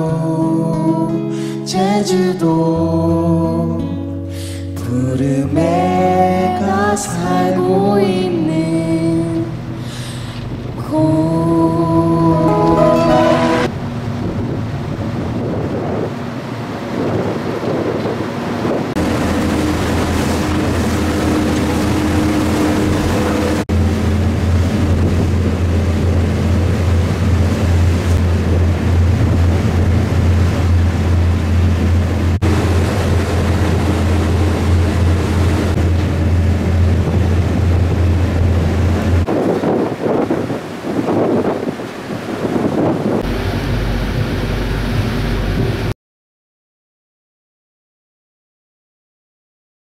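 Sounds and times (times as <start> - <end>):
ship engine droning: 5.6 - 15.4, 18.2 - 39.4, 43.2 - 45.9
rush of boat wake: 8.4 - 45.9
wind buffeting microphone: 13.8 - 45.9.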